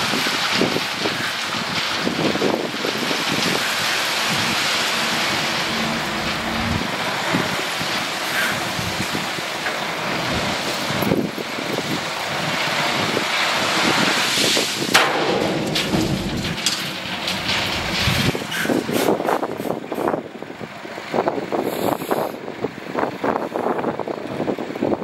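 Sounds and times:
crushed stone sliding and rattling: 0.2s - 19.2s
diesel truck engine running: 0.5s - 25.0s.

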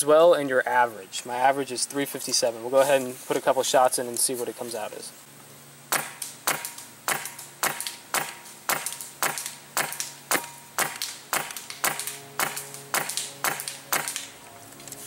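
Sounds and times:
airsoft rifle firing single shots: 5.9s - 14.3s.

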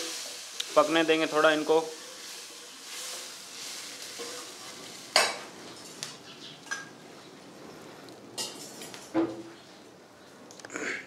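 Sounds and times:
spices sizzling in hot oil: 0.0s - 6.3s.

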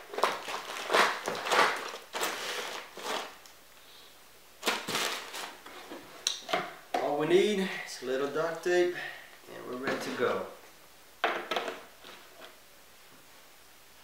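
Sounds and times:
paper and plastic rustling: 0.0s - 3.4s, 4.6s - 6.1s.

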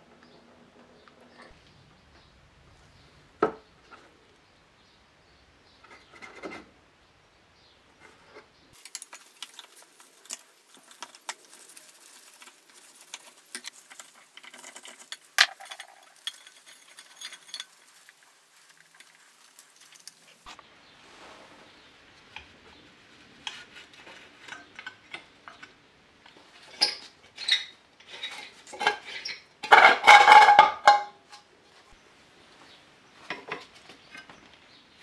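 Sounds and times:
hand tools clicking on metal: 8.8s - 20.3s.

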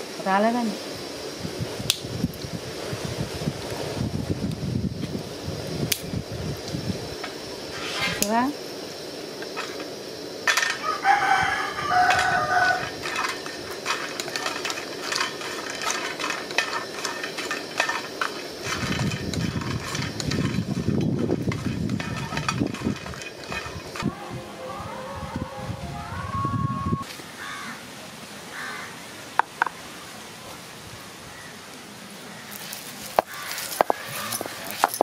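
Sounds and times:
cinnamon sticks dropping into pan: 9.4s - 10.9s, 11.9s - 20.8s
rooster crowing: 10.7s - 13.5s, 33.3s - 34.6s.

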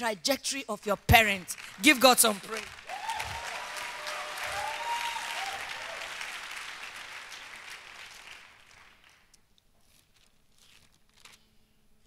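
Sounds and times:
congregation applauding: 1.1s - 9.4s.

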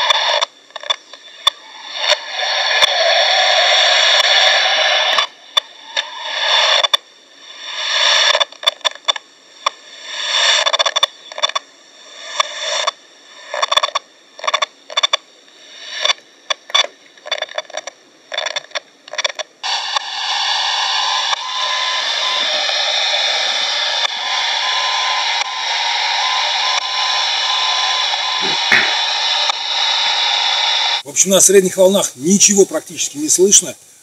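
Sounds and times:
radio static hiss: 0.0s - 34.0s.

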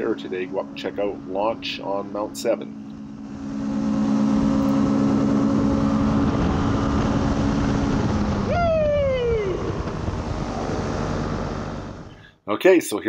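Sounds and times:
tone gliding downward: 0.0s - 12.1s
paramotor engine and propeller: 0.0s - 12.4s
rushing noise: 2.0s - 12.2s.

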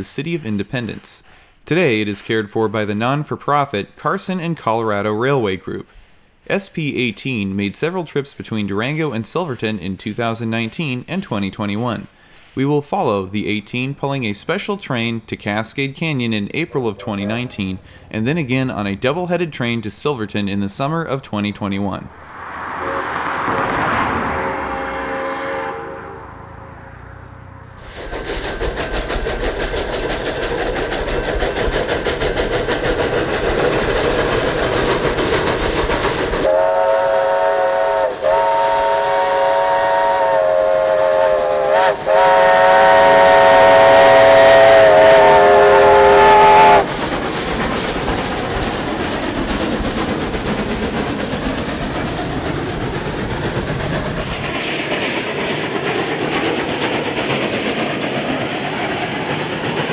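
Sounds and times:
steam train running: 0.0s - 59.9s
chime steam whistle: 24.6s - 26.7s, 36.5s - 46.9s.

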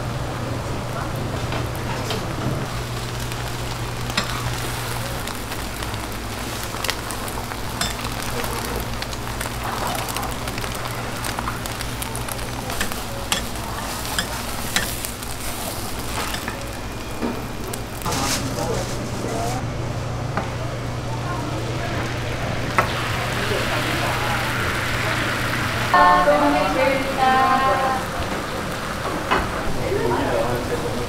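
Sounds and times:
egg sizzling on griddle: 2.6s - 18.1s.

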